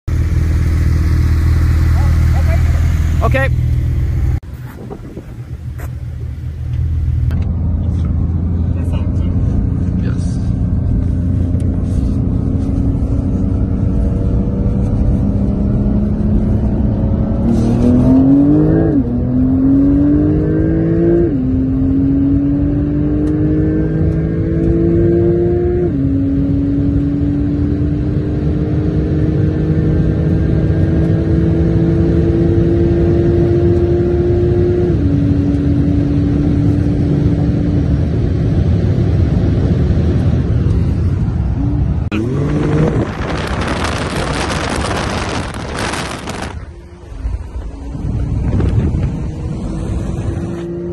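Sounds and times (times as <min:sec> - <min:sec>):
road and wind noise: 0:00.0 - 0:50.9
car engine accelerating: 0:00.1 - 0:50.9.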